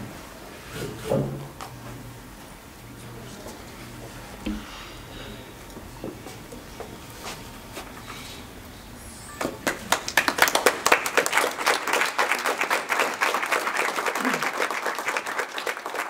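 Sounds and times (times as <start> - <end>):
audience applauding: 9.2 - 16.0.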